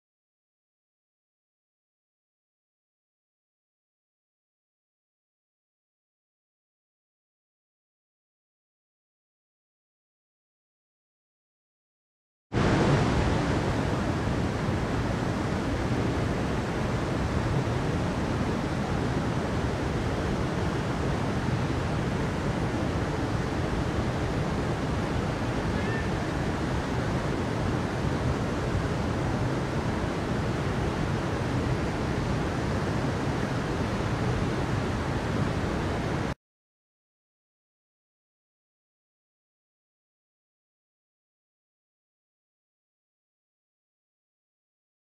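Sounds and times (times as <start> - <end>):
water rushing over rocks: 12.6 - 36.4.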